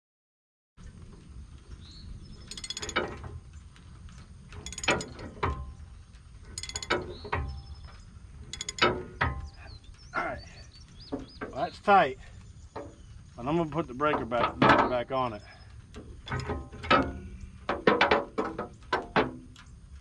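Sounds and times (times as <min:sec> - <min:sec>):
ratchet wrench clicking: 0:02.5 - 0:03.0, 0:04.6 - 0:05.2, 0:06.6 - 0:07.0, 0:08.5 - 0:08.9.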